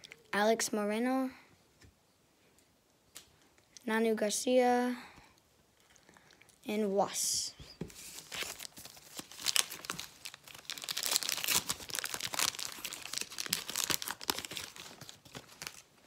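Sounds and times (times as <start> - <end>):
plastic wrapper crinkling and tearing: 8.0 - 16.0.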